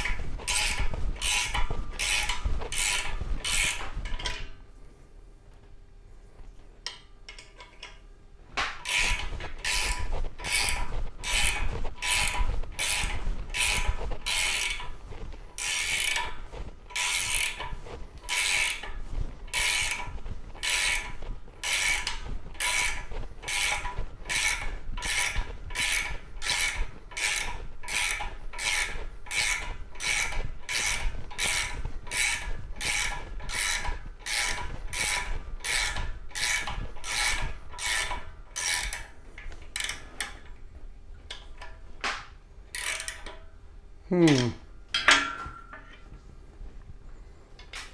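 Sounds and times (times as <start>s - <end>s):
socket wrench ratcheting: 42.8s - 43.4s.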